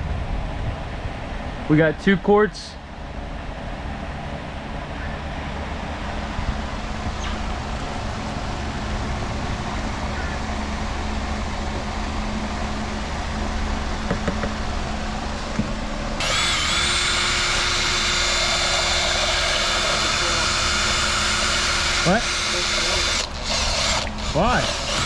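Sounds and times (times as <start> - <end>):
electric drill whining: 16.2 - 25.0.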